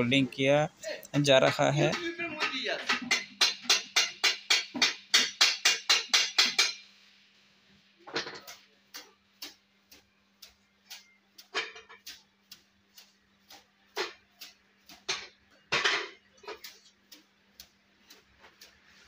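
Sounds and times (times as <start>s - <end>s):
metal clinks and scrapes: 10.9s - 12.3s, 13.9s - 17.3s.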